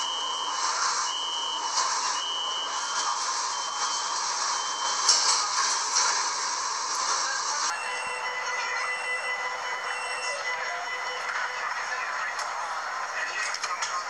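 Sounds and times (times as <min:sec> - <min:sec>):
door warning beeps: 0:00.0 - 0:05.2, 0:07.7 - 0:11.7.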